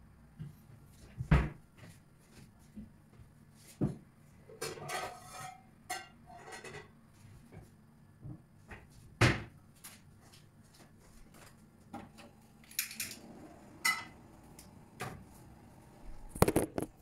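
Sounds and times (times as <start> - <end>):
kitchenware clattering: 4.5 - 7.0, 13.8 - 14.2.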